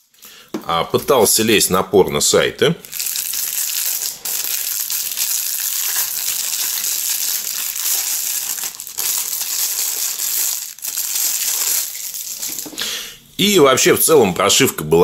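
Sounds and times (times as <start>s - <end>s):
plastic film crinkling: 2.8s - 12.8s.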